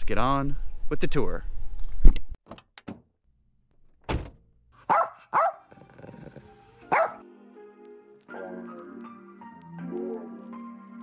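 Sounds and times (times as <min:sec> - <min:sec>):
thunk: 0:04.1 - 0:04.4
dog barks: 0:04.8 - 0:07.2.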